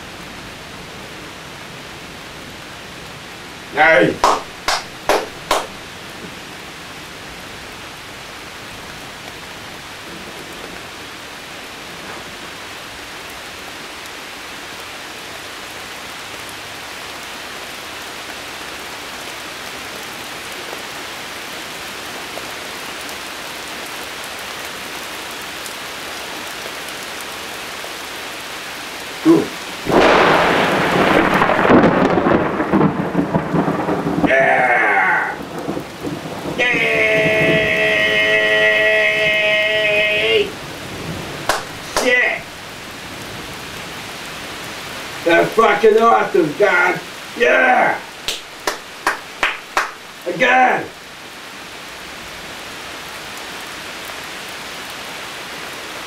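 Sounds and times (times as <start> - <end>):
steady rain: 0.0 - 56.0
thunderclap and rumbling: 29.8 - 38.1.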